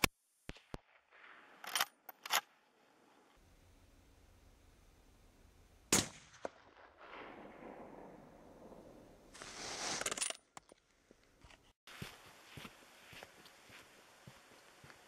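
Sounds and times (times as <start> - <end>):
suppressed rifle shot: 5.9 - 10.0.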